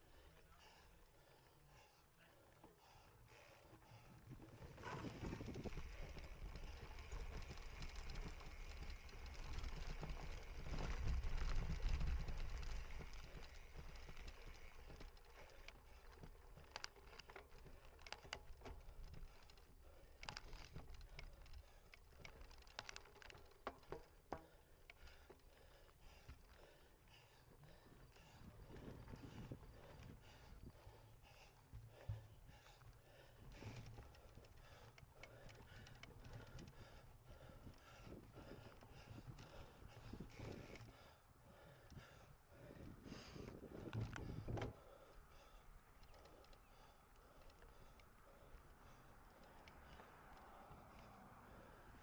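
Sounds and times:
bicycle rattling and clicking: 0.1s - 52.0s
wind and tyre rumble: 4.0s - 24.2s, 25.0s - 52.0s.

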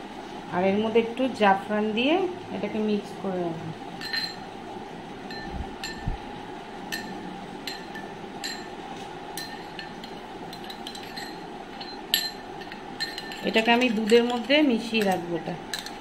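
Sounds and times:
metal spoon clinking glass bowl: 4.0s - 4.5s, 5.3s - 6.2s, 6.9s - 8.8s, 9.4s - 16.0s.

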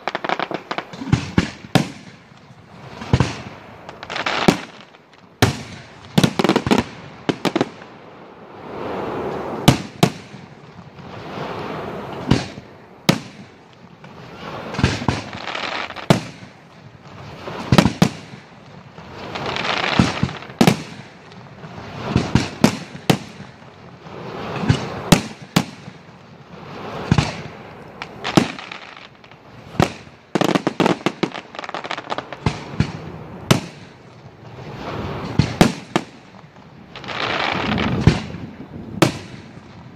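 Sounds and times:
fireworks hissing and crackling: 0.0s - 39.9s
firework shells bursting: 11.3s - 39.6s.

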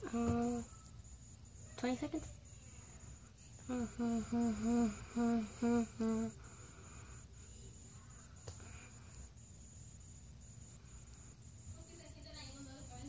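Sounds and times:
girl humming muffled notes: 0.0s - 0.8s, 3.6s - 6.4s
faint background hiss: 0.0s - 13.0s.

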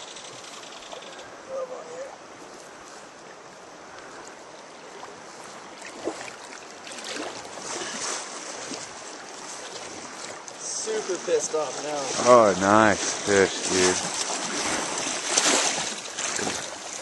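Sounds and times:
river current rushing and lapping: 0.0s - 17.0s
short water splashes: 4.1s - 17.0s.

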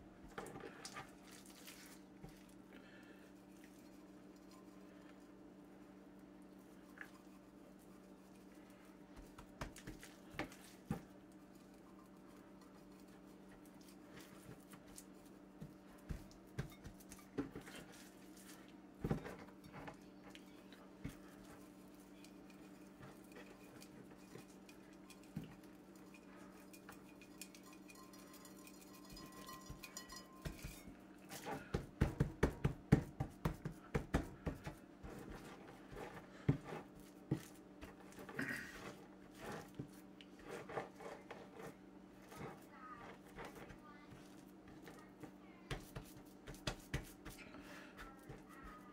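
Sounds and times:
hands patting meat on board: 9.0s - 11.2s, 13.6s - 19.4s, 31.4s - 35.6s, 44.8s - 48.9s.

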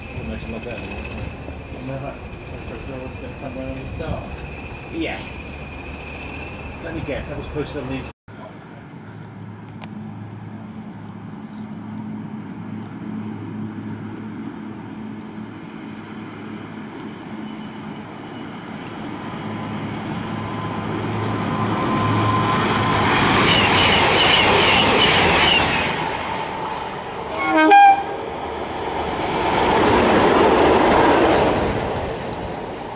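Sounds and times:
train wheels: 0.0s - 8.1s, 19.8s - 32.9s
diesel locomotive engines: 0.0s - 32.9s
train horn blast: 27.3s - 28.2s.

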